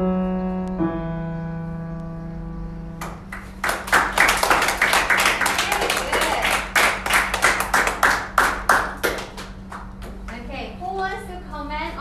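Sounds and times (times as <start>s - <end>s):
digital piano chord: 0.0s - 4.0s
children clapping: 3.0s - 10.4s.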